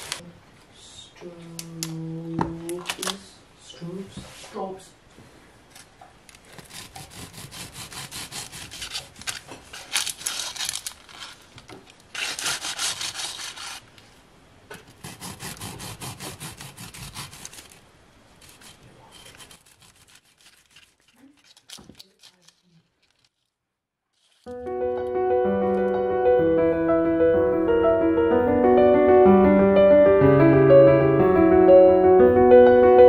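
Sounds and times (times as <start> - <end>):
bread knife sawing through loaf: 6.5 - 9.2, 12.2 - 13.8, 15.0 - 17.8, 18.4 - 20.7.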